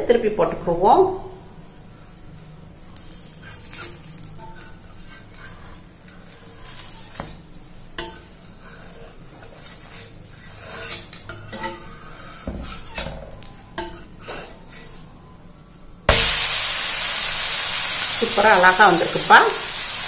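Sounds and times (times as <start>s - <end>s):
ghee sizzling on hot pan: 1.6s - 15.1s, 16.0s - 20.0s
spatula scraping iron pan: 3.0s - 15.1s.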